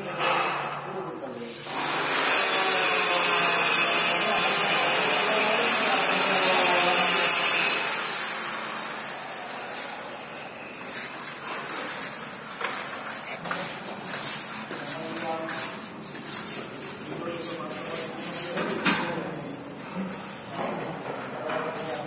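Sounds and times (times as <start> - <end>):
power tool whining and spinning down: 1.7 - 10.8.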